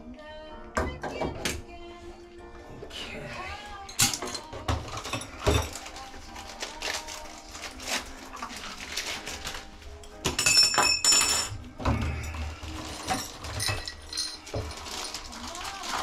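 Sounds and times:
faint music: 0.0 - 16.0
metal parts clinking in plastic box: 12.3 - 16.0.

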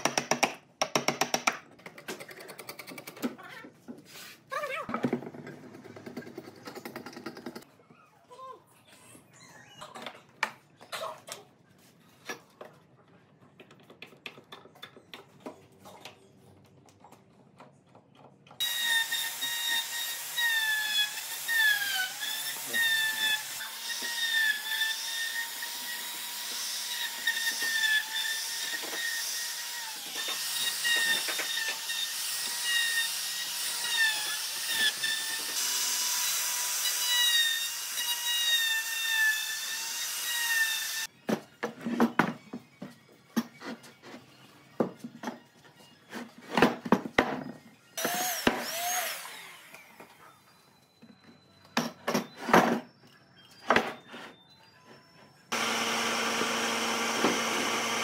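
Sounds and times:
router high whine: 55.5 - 58.0.

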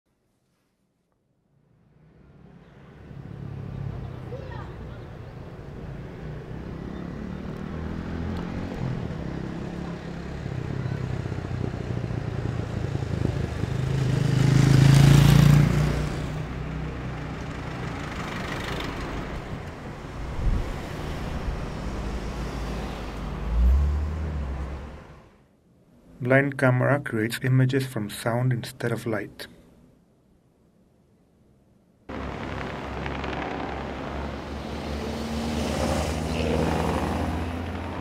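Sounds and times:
steady traffic noise: 1.4 - 38.0
motor vehicle passing close: 5.7 - 16.6, 17.8 - 25.4, 32.1 - 38.0.

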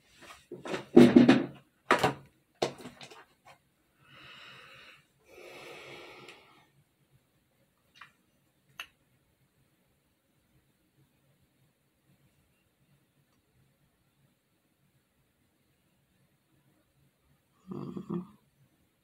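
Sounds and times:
rustling and knocking of items: 0.0 - 3.7
person breathing out: 4.0 - 6.7.

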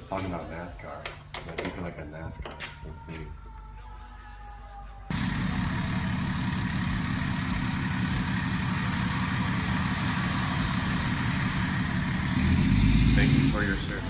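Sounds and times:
diesel engine rumbling: 5.1 - 14.0.

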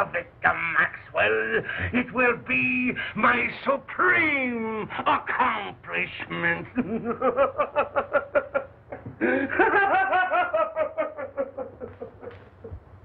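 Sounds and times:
man laughing: 6.5 - 12.8.

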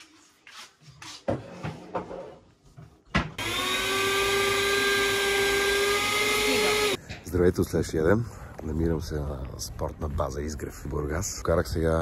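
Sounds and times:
electric juicer motor running: 3.4 - 7.0.

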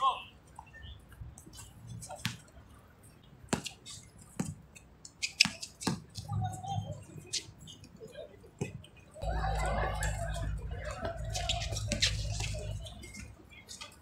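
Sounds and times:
shoes on court: 3.5 - 6.6, 10.0 - 14.0
faint voices: 5.6 - 14.0.

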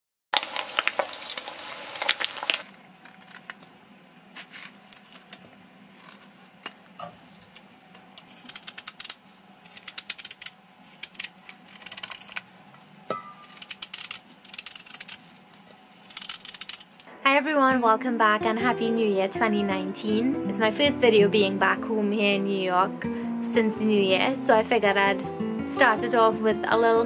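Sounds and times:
fish sizzling in hot oil: 0.4 - 2.7
knife cutting and scraping: 4.4 - 7.3, 8.2 - 12.5, 13.3 - 17.1.

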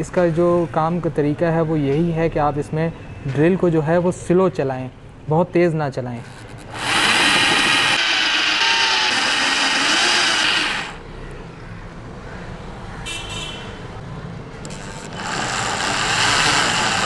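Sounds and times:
rotary hammer drilling into steel: 6.3 - 11.0, 14.6 - 17.0.

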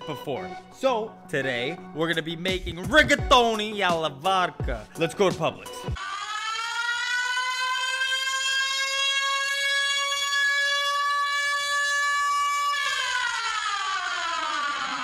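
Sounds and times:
siren-like wail: 6.0 - 15.0.

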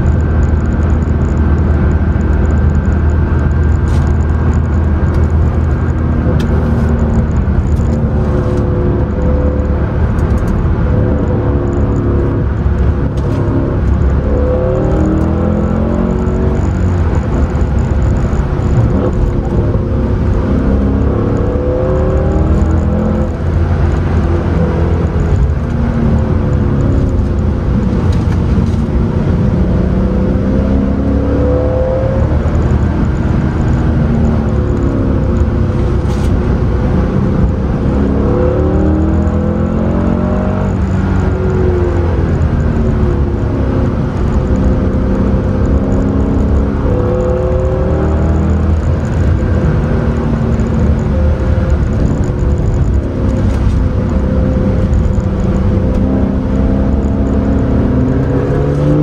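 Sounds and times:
car engine revving through gears: 0.0 - 59.0.

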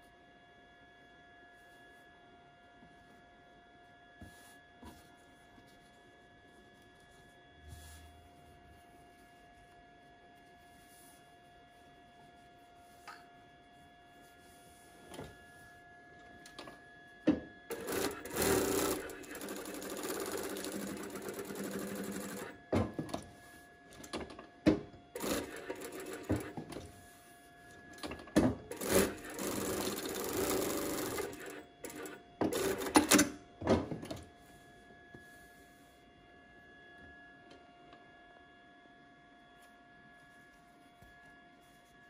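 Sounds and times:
sewing machine stitching: 17.7 - 22.6, 25.2 - 26.7, 28.7 - 33.3.

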